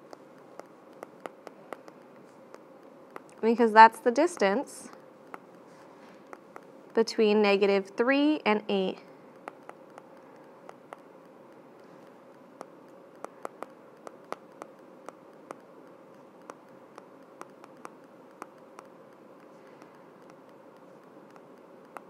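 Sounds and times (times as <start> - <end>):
low steady hum: 0.0 - 22.0
stylus clicking on glass screen: 9.4 - 22.0.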